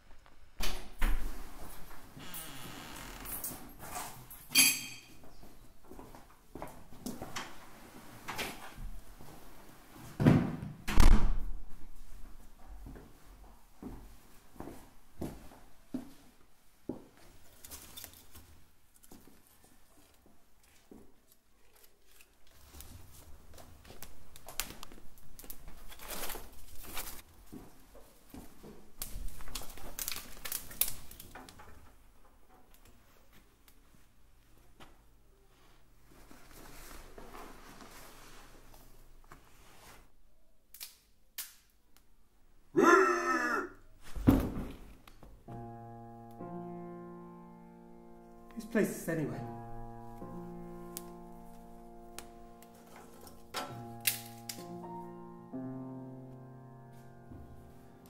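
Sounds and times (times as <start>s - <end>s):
rustling and scuffing: 5.2s - 10.3s, 11.7s - 31.2s, 32.9s - 40.2s.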